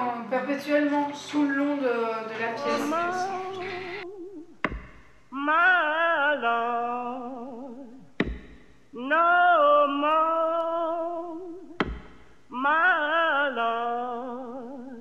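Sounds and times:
person singing blues a cappella: 0:00.0 - 0:04.6, 0:05.3 - 0:08.3, 0:08.9 - 0:15.0
sharp percussive hits: 0:04.6 - 0:05.2, 0:08.2 - 0:08.8.

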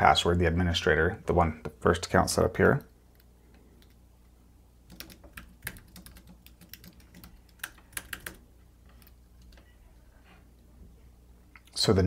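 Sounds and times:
keyboard typing clicks: 0:04.9 - 0:08.4.

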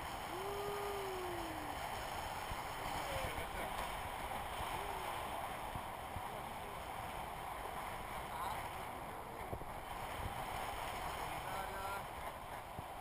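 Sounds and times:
wind rushing over microphone: 0:08.9 - 0:11.7.

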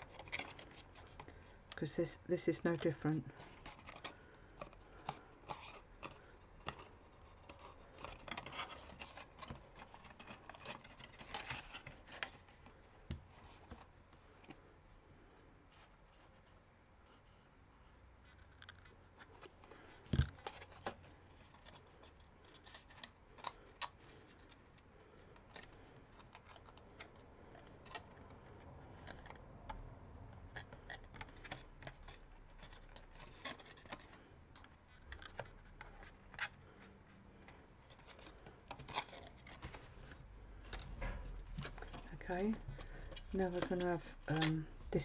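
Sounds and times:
cardstock taps and rustles: 0:19.2 - 0:21.8.

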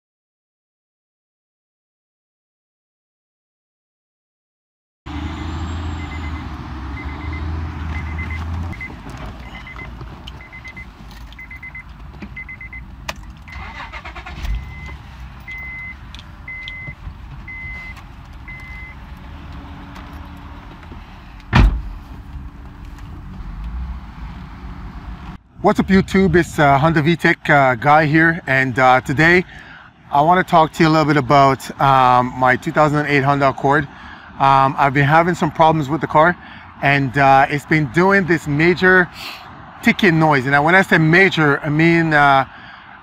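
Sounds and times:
dashboard warning chime beeping: 0:06.0 - 0:19.1
car engine running: 0:06.0 - 0:25.3
loud thump: 0:21.5 - 0:22.0.

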